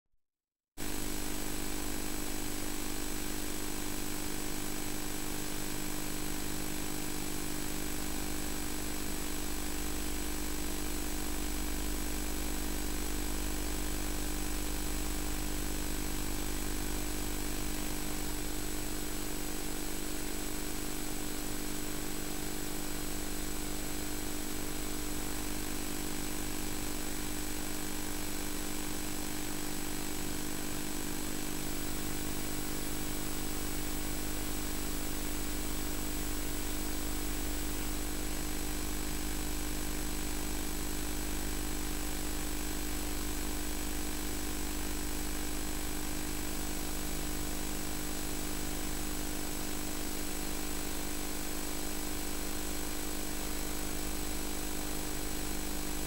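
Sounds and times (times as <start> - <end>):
low hum and buzz: 0.8 - 56.0.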